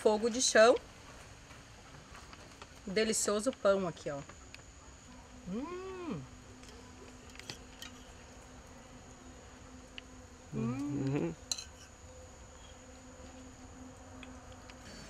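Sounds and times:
faint high whine: 0.0 - 15.0
insect buzzing: 5.3 - 6.6, 7.6 - 15.0.

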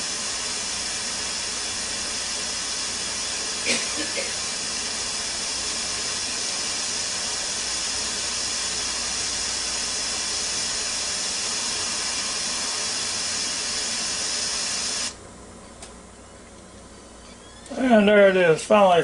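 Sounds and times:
pressure cooker steam hissing: 0.0 - 15.2.

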